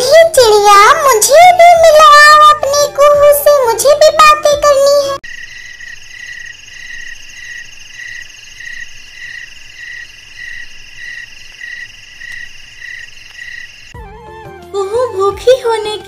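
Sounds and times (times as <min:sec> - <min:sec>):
frogs and insects trilling: 0:05.2 - 0:14.0.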